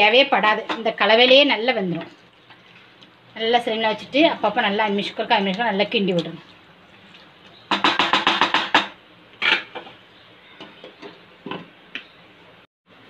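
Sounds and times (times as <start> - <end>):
spatula knocking and scraping pan: 7.7 - 10.0.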